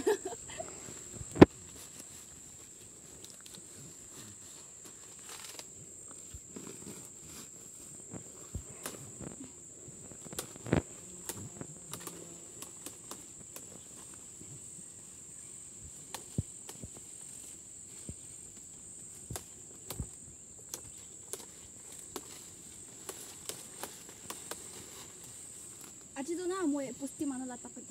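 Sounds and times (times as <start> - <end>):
insects chirring: 0.0 - 27.9
leafy stalks snapping: 5.1 - 5.7, 8.1 - 9.4, 10.1 - 13.8, 16.0 - 17.0, 18.5 - 26.0.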